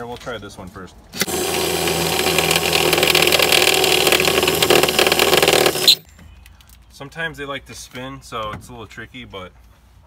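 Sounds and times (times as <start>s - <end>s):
cordless drill grinding into rivet: 1.2s - 6.0s.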